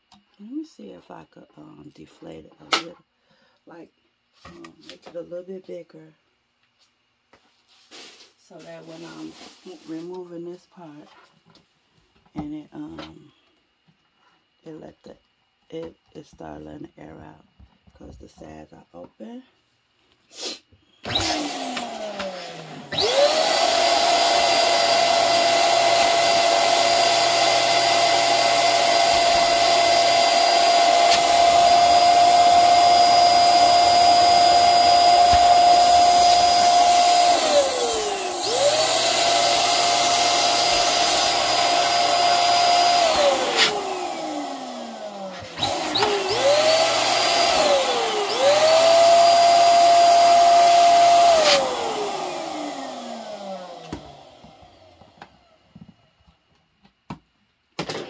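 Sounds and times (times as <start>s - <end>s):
electric air pump whining: 20.4s - 55.5s.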